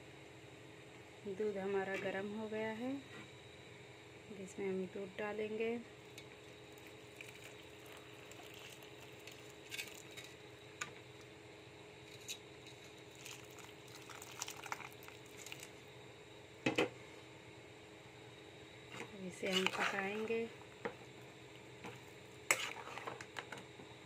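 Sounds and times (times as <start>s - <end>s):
milk trickling into a pan: 7.1s - 10.1s, 13.1s - 15.8s.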